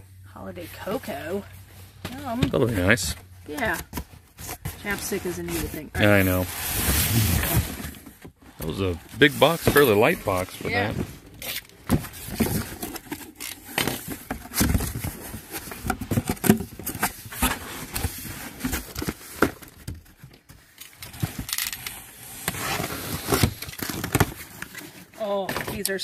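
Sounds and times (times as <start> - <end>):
boxes knocking and sliding: 2.0 - 21.5
cardboard flaps rustling: 2.0 - 25.8.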